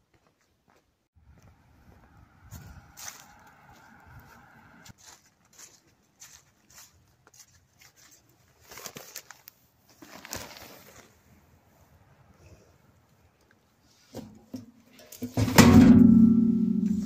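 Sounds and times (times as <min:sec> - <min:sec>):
mail rustling: 0:08.6 - 0:11.1.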